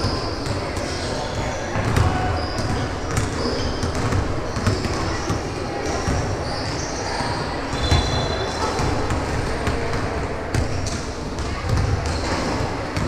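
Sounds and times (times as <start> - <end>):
sneaker squeaks: 0.0 - 13.0
basketball dribbling on gym floor: 1.8 - 5.4.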